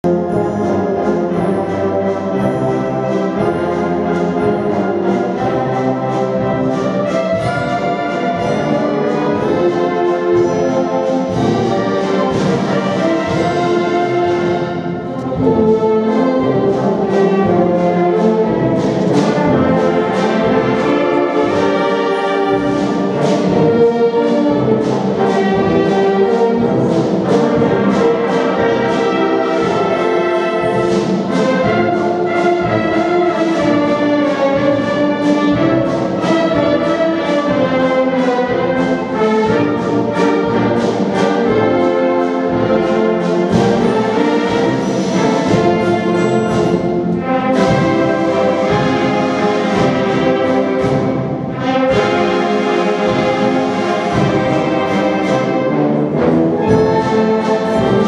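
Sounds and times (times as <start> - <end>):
wind band playing a tune: 0.0 - 58.0.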